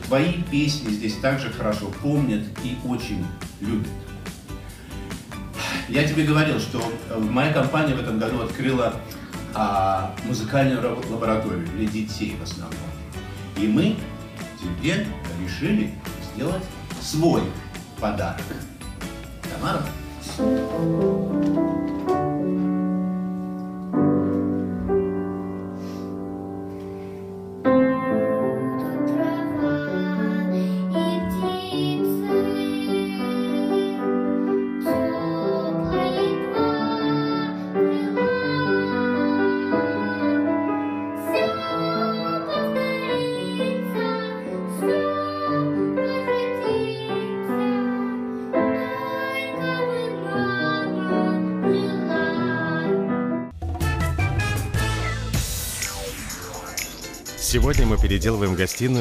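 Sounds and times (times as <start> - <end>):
piano chords: 0.0 - 56.1
person singing: 28.4 - 34.1.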